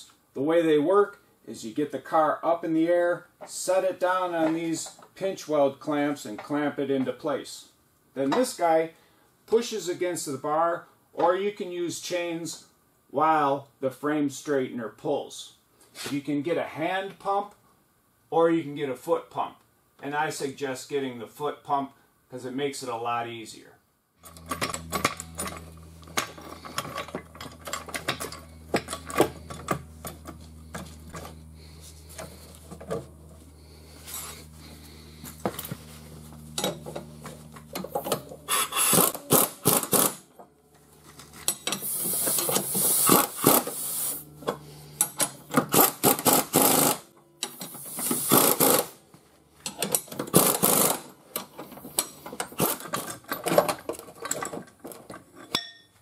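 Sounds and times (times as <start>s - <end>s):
pneumatic impact wrench bursts: 24.2s - 32.9s, 36.6s - 40.3s, 41.3s - 49.0s, 49.8s - 51.1s, 51.8s - 53.1s.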